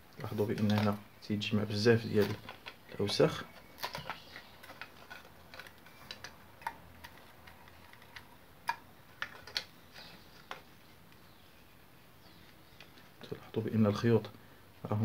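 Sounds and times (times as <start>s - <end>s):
plastic parts clicking: 2.2s - 10.6s.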